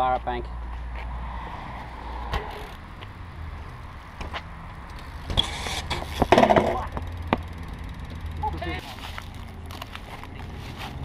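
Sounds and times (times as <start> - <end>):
bike rolling on concrete: 0.0 - 11.0
bike clattering onto concrete: 4.1 - 11.0.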